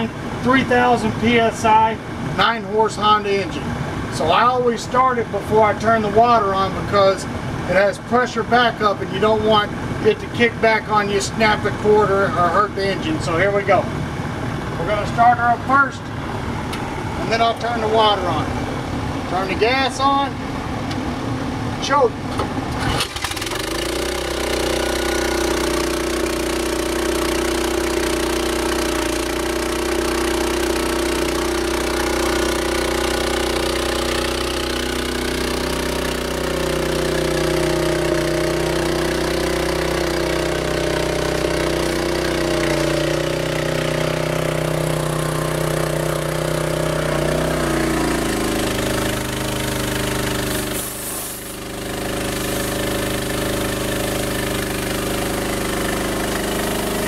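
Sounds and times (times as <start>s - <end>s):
pressure washer engine running: 0.0s - 57.0s
pressure washer wand spraying: 23.1s - 57.0s.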